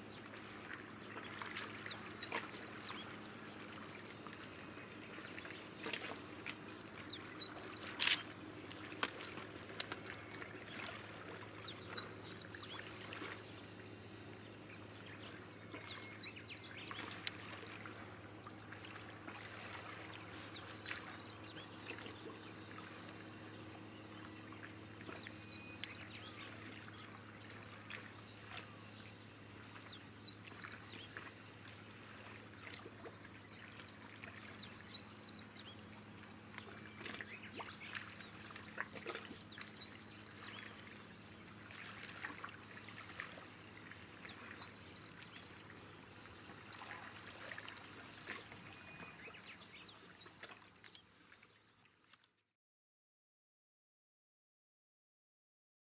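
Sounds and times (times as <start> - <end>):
steady low hum: 0.0 - 50.2
small waves lapping: 0.0 - 52.3
small scattered clicks: 7.8 - 10.5, 25.8 - 26.0.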